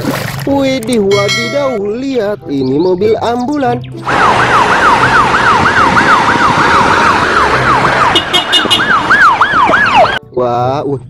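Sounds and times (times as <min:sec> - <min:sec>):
street traffic: 0:00.9 - 0:10.4
ambulance siren wailing: 0:04.0 - 0:10.2.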